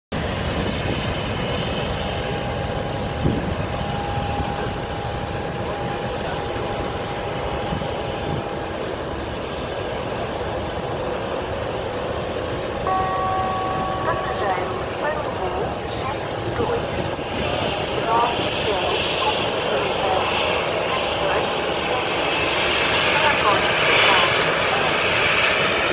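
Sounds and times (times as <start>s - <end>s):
jet engines rumbling and whining: 0.1s - 25.9s
higher engine tone: 1.8s - 22.4s.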